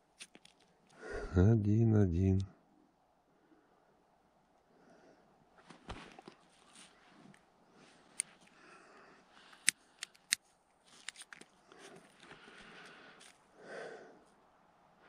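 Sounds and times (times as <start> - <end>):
faint rustling: 5.5 - 13.5.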